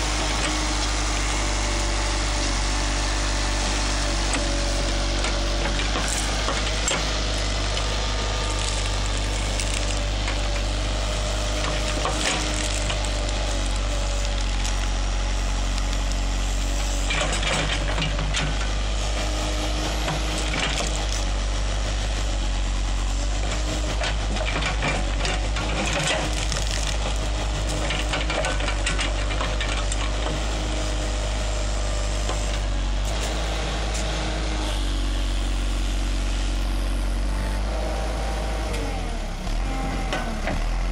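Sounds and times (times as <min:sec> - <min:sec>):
diesel engine running: 0:00.0 - 0:40.9
roots and soil snapping: 0:03.7 - 0:18.7, 0:19.7 - 0:21.3, 0:23.5 - 0:31.0.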